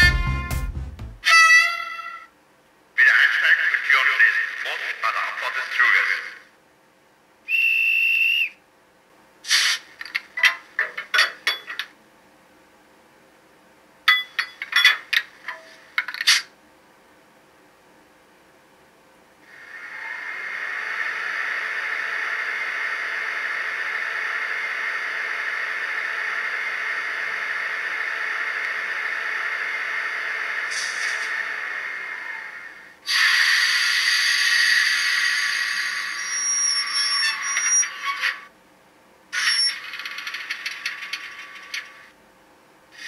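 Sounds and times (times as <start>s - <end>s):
high whistle: 7.5s - 8.6s, 35.9s - 38.0s
metallic clinks and clanks: 14.1s - 15.1s
hiss from small loudspeaker: 33.1s - 36.4s.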